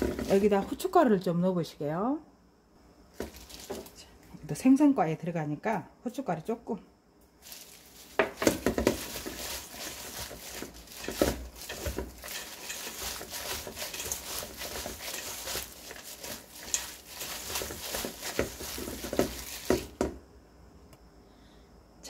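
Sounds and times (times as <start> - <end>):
plastic glove crinkling: 0.0 - 0.8, 3.2 - 4.1, 7.4 - 20.1
sticky strips rustling: 3.2 - 4.0, 7.4 - 20.1.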